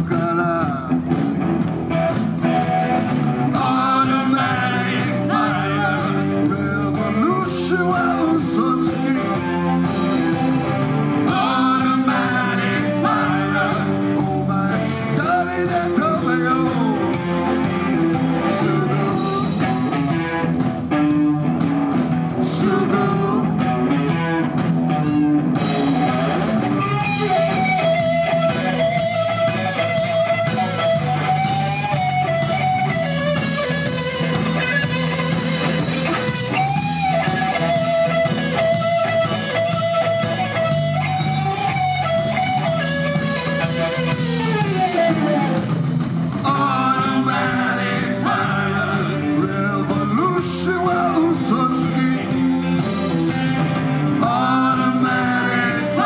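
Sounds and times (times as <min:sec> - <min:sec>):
man singing: 0:00.0 - 0:01.3, 0:03.5 - 0:20.1, 0:22.3 - 0:24.2, 0:46.4 - 0:52.9, 0:54.2 - 0:56.0
live rock band playing: 0:00.0 - 0:56.0.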